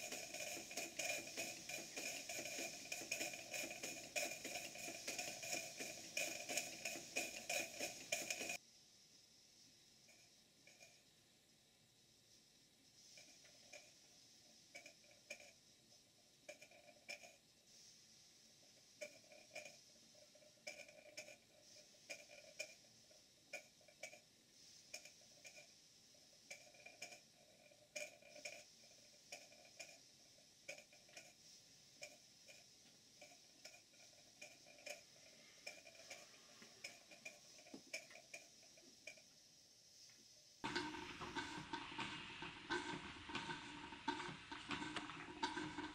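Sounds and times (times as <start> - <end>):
model steam engine clicking: 0.0 - 8.6, 13.0 - 39.4, 40.0 - 45.9
light steam hiss: 0.0 - 45.9
rush of steam: 39.9 - 45.9.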